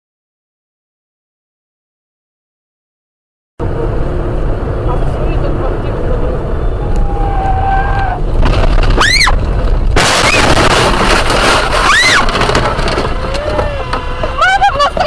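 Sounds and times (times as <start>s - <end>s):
tyre and road noise: 3.6s - 15.0s
car crash: 6.4s - 15.0s
tyres squealing: 6.5s - 9.5s, 10.1s - 15.0s
windscreen shattering: 7.3s - 15.0s.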